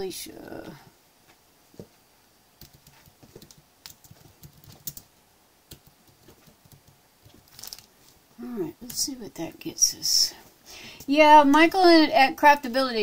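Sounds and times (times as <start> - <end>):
typing on computer keyboard: 2.6 - 5.1, 5.7 - 7.0.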